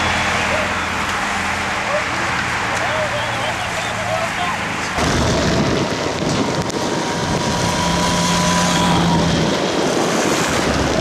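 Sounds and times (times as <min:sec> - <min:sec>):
motorcycles passing: 0:00.0 - 0:11.0
wind noise on microphone: 0:05.0 - 0:11.0.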